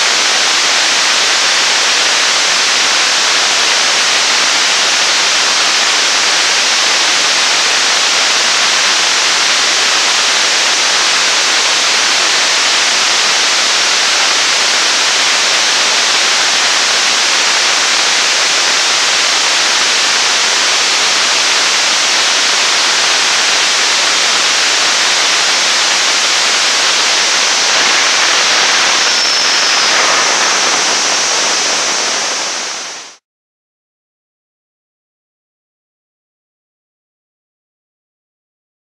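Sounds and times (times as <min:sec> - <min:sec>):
rocket engine exhaust roaring: 0:11.2 - 0:33.2.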